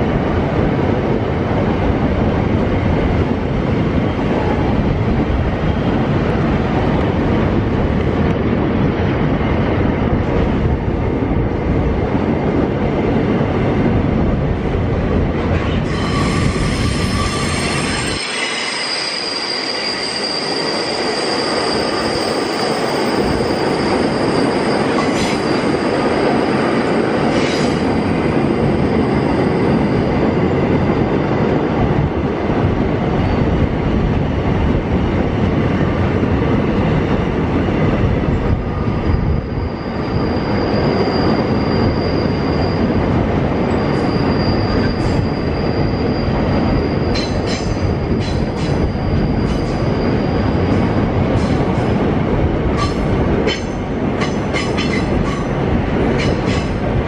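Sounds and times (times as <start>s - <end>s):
steel wheels rumbling on rail: 0.0s - 57.0s
high wheel squeal: 15.8s - 30.1s, 39.0s - 50.7s.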